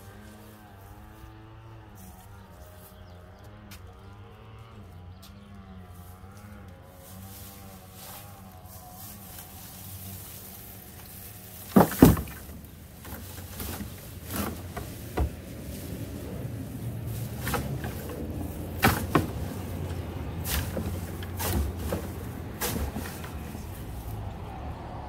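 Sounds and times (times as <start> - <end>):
stalks knocking into plastic cart: 11.6 - 15.6, 17.1 - 23.5.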